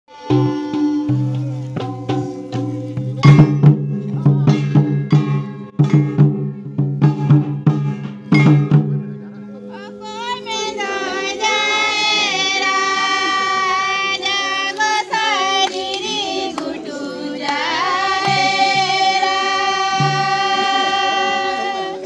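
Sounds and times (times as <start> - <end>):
women singing together: 10.2 - 22.0.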